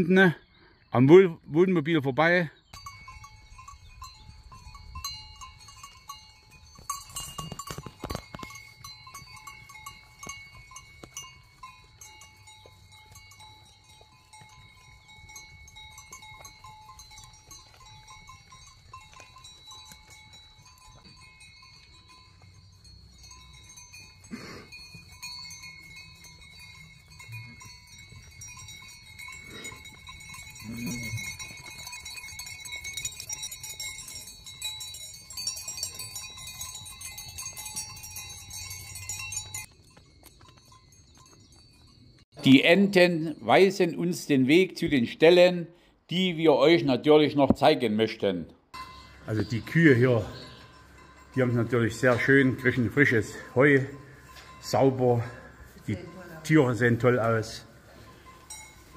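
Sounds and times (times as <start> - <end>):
cowbells clanking: 2.7 - 45.2, 48.7 - 58.9
cow lowing: 24.2 - 25.6, 29.1 - 32.2.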